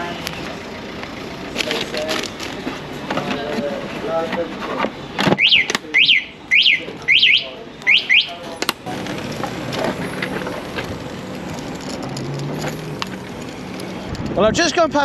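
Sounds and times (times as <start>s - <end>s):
tyre and wind noise: 8.6s - 15.0s
electric moped motor hum: 8.8s - 14.3s.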